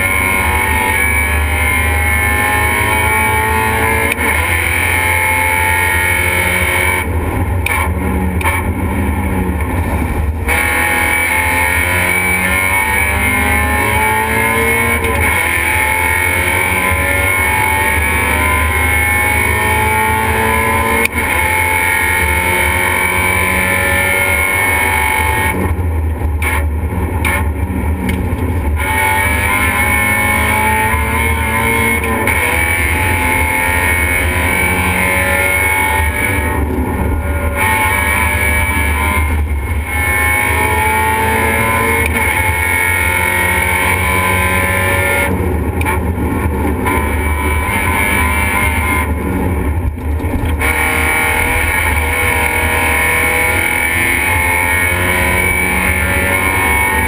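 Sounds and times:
race car engine revving: 0:00.0 - 0:57.0
road and wind noise: 0:00.0 - 0:57.0
sharp click: 0:07.6 - 0:08.7.

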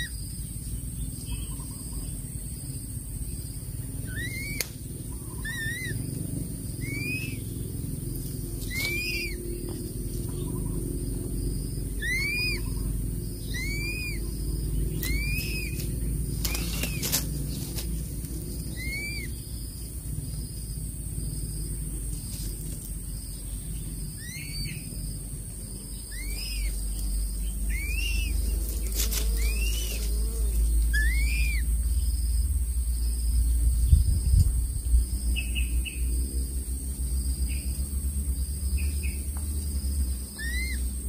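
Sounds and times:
steady low rumble: 0:00.0 - 0:41.0
chick begging peeps: 0:08.6 - 0:09.4.

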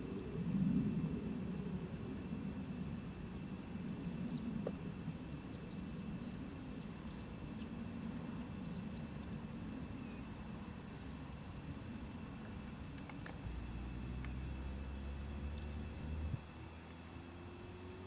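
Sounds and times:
small birds chirping: 0:05.4 - 0:07.8, 0:08.4 - 0:11.4, 0:12.5 - 0:17.0, 0:17.6 - 0:18.0
low rumble: 0:12.6 - 0:16.8.

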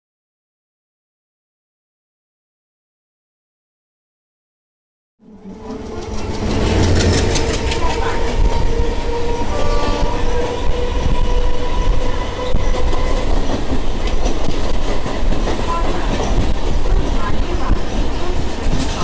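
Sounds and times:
train wheels rumbling on rails: 0:05.3 - 0:19.0.

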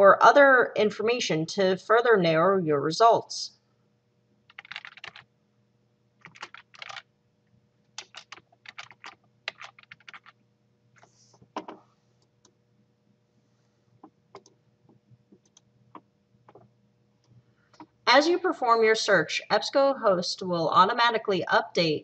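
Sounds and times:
faint electrical hum: 0:00.0 - 0:22.0
keyboard typing: 0:04.5 - 0:05.2, 0:06.2 - 0:07.1, 0:08.0 - 0:10.4, 0:11.5 - 0:11.8, 0:14.0 - 0:14.6, 0:15.3 - 0:16.7.

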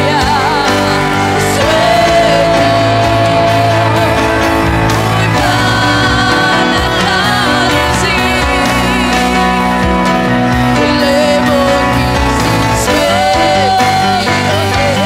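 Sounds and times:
voice holding long note: 0:00.0 - 0:15.0
worship singing with instruments: 0:00.0 - 0:15.0.

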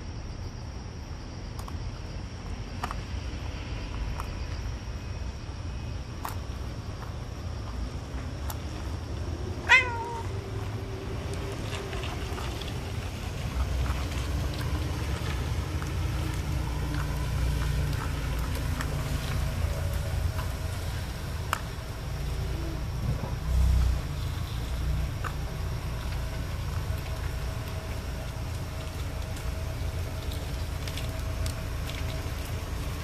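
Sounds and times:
cat meowing: 0:09.6 - 0:10.4.

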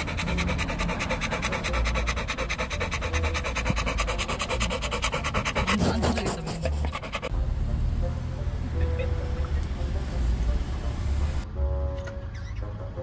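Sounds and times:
otter panting fast: 0:00.0 - 0:07.3.

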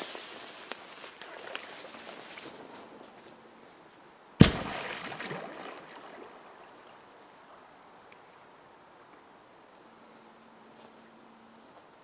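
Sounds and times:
water spray splashing onto pond: 0:04.4 - 0:08.3.

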